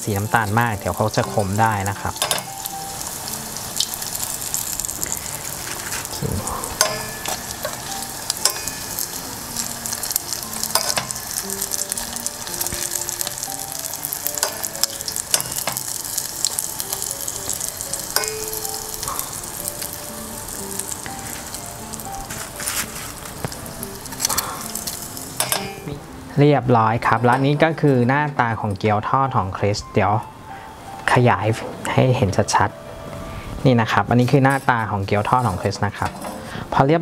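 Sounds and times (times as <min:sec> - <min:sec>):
deep-frying sizzle: 0:00.0 - 0:36.8
metal tongs clicking on pan: 0:01.2 - 0:02.7, 0:06.7 - 0:13.6, 0:14.2 - 0:17.1, 0:18.1 - 0:20.0, 0:23.4 - 0:25.9.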